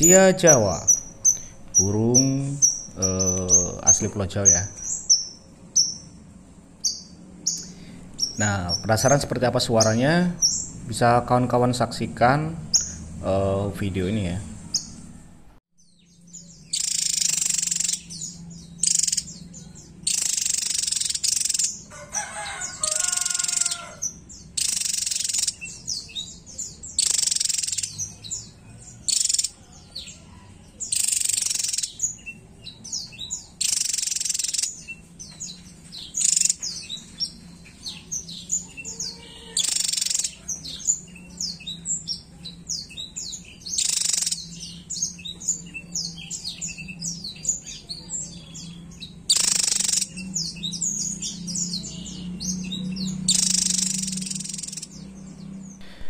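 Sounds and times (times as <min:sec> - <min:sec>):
bird song bursts: 0:00.0 - 0:15.2, 0:15.8 - 0:30.2, 0:30.8 - 0:56.0
high bird chips: 0:53.3 - 0:54.8.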